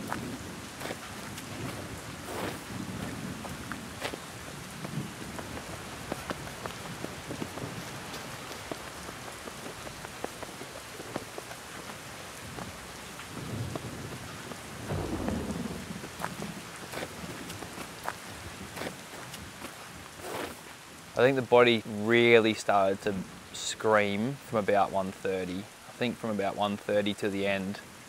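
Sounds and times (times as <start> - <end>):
low rumbles: 0.0 - 20.4
rain falling: 0.0 - 28.0
raindrops striking close: 0.0 - 28.0.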